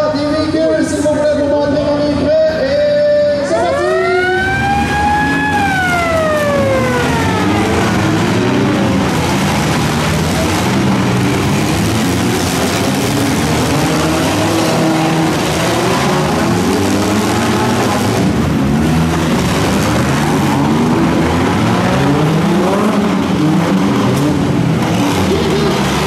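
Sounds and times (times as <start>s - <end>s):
car engines revving: 0.0s - 26.0s
siren winding up and down: 3.6s - 8.3s.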